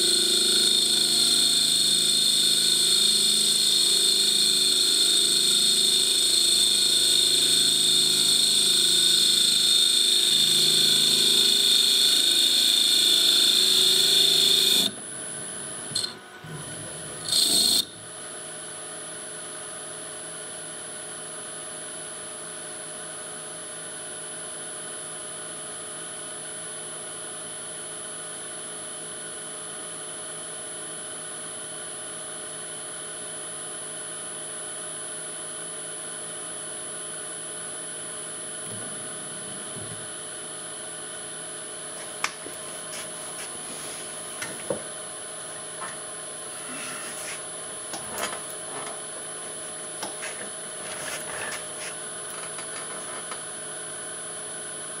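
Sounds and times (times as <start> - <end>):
mill spindle whining while cutting: 0.0 - 17.9
machine hum: 38.5 - 53.7.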